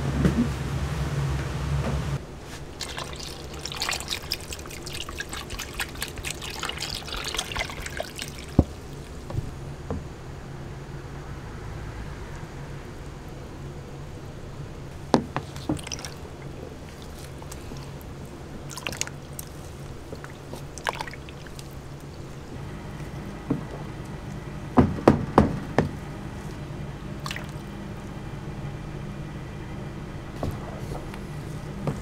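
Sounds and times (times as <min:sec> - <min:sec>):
steady low hum: 0:00.0 - 0:32.0
batter stirred in plastic tub: 0:02.5 - 0:09.1
sharp knocks: 0:24.8 - 0:26.0.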